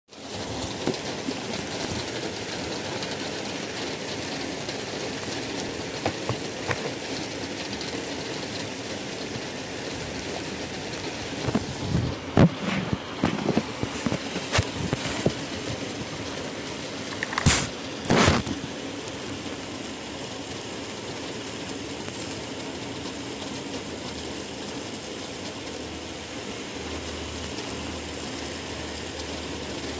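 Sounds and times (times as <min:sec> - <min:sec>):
rain falling: 0:00.1 - 0:29.9
irregular taps and knocks: 0:06.0 - 0:07.0.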